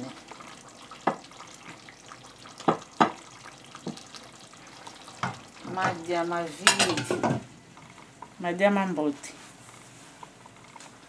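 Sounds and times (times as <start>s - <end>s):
wooden spoon knocking on dishes: 2.6s - 3.2s, 5.2s - 6.0s, 6.6s - 7.5s.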